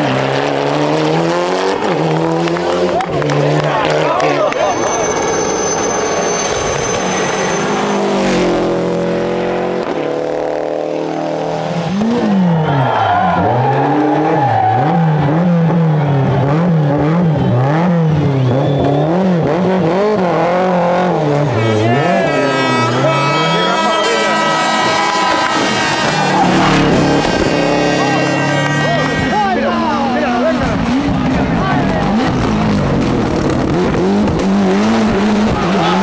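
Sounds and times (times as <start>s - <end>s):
rally car engine revving: 0.0s - 36.0s
rally car passing: 0.0s - 36.0s.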